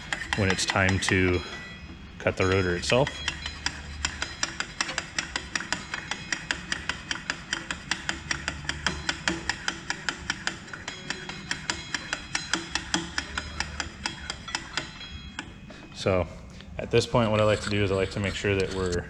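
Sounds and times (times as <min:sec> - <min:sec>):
brake lathe clicking: 0:00.0 - 0:01.2, 0:02.5 - 0:15.6.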